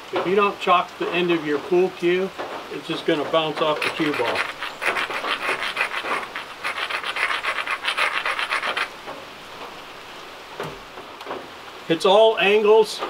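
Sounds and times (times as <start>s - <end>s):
flint scraping: 3.6s - 10.0s.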